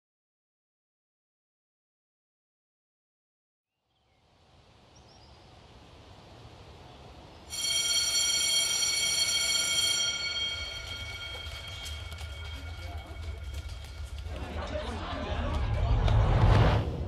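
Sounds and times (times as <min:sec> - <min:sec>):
low hazy ambient wash: 0:04.4 - 0:17.0
loud high steady tone: 0:07.5 - 0:14.0.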